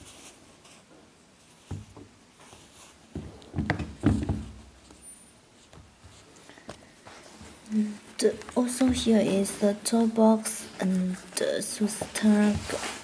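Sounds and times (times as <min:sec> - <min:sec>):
thumps and bumps: 0:01.6 - 0:05.0, 0:08.2 - 0:09.8, 0:11.9 - 0:13.0
knocks on a tabletop: 0:03.2 - 0:04.5.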